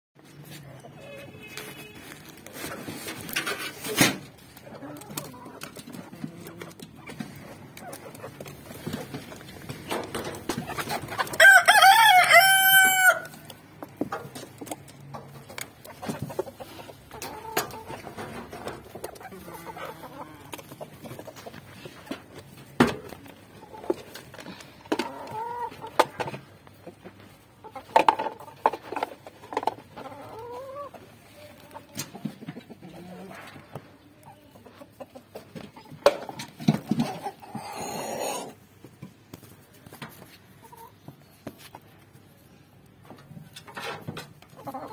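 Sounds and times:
hens clucking: 2.2s - 44.9s
rooster crowing: 11.4s - 13.4s.

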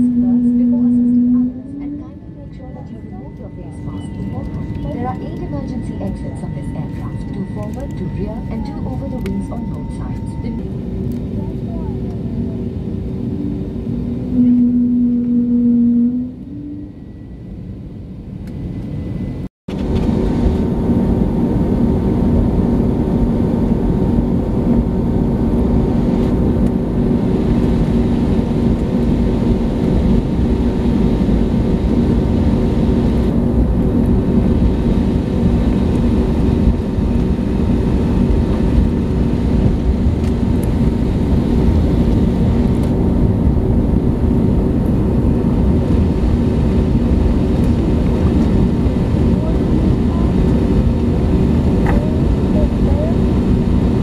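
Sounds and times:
short held hum: 0.0s - 2.5s, 13.2s - 17.6s
aircraft cabin engine drone: 0.0s - 54.0s.

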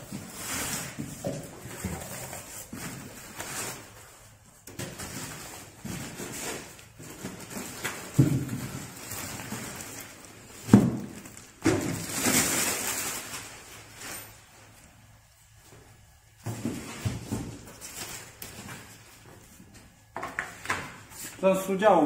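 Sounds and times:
plastic wrapping rustling: 0.0s - 21.5s
parts knocking against box: 4.7s - 8.9s.

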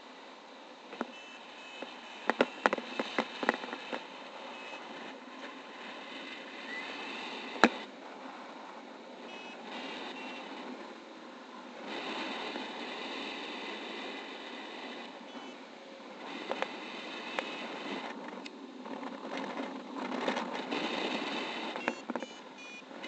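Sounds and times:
short high beeps: 1.1s - 1.9s, 21.8s - 22.8s
wind rushing over microphone: 1.8s - 22.3s.

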